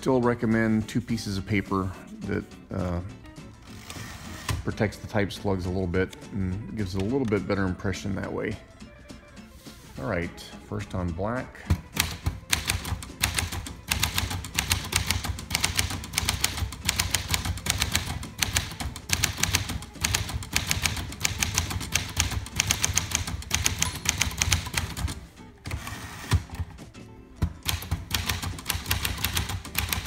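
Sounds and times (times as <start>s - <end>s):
fast typewriter typing: 11.9s - 26.6s, 27.6s - 30.0s.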